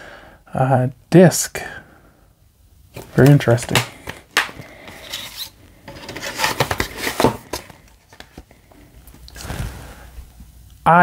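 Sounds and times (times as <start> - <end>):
handling noise: 2.9 - 8.8
cardboard scraping on plastic: 3.0 - 8.4.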